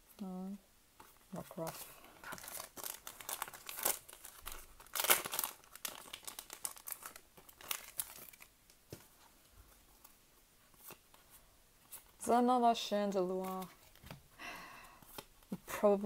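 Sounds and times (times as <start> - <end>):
foil wrapper tearing and crinkling: 2.3 - 8.5.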